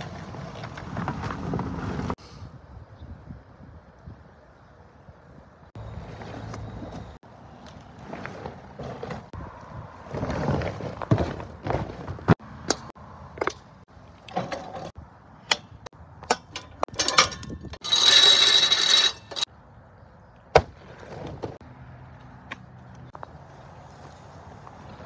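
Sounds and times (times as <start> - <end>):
handling clicks and knocks: 12.6 - 17.8.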